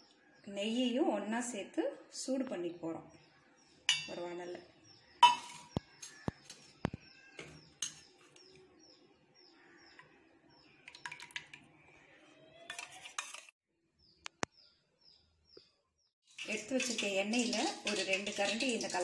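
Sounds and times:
metal pan and tumbler clinks: 0:03.9 - 0:04.2, 0:05.2 - 0:06.2, 0:16.3 - 0:19.0
small bird chirping: 0:14.0 - 0:16.1
ghee pouring into oil: 0:16.3 - 0:19.0.

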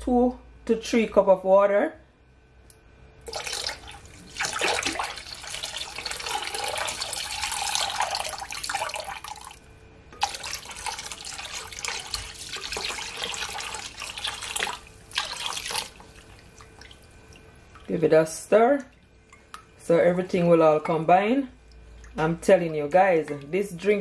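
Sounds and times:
water pouring into glass bowl: 0:03.3 - 0:09.6, 0:10.2 - 0:17.9.

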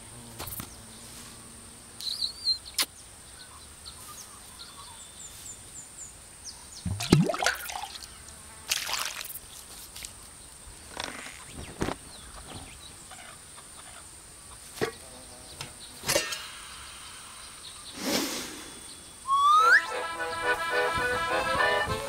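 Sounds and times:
deep nasal sniff: 0:17.9 - 0:18.9
rising whistle: 0:19.2 - 0:21.8.

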